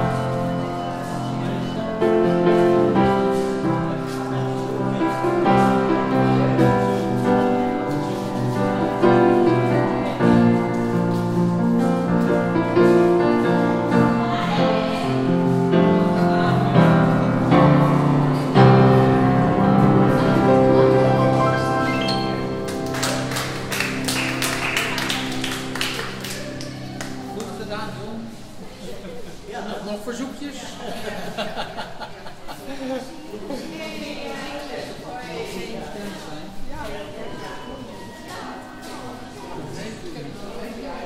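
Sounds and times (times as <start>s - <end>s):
upright piano playing: 0.0s - 28.6s.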